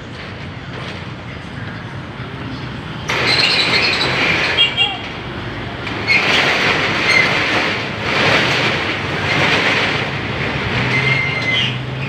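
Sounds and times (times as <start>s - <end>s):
steel roll-up shutter rattling: 2.9s - 12.0s.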